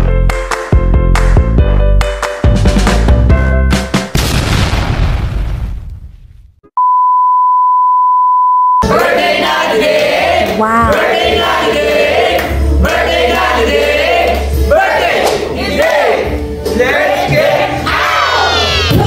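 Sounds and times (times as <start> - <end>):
steady high beep: 6.8 - 8.8
group of people singing: 8.8 - 19.0.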